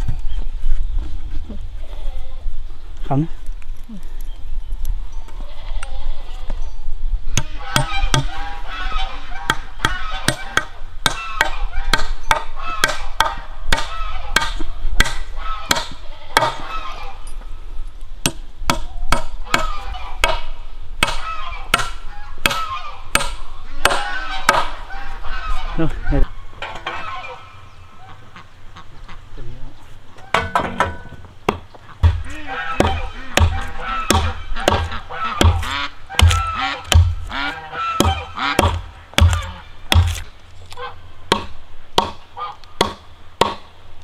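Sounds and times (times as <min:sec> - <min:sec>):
animal calls: 0:21.2 - 0:30.8, 0:31.8 - 0:39.8.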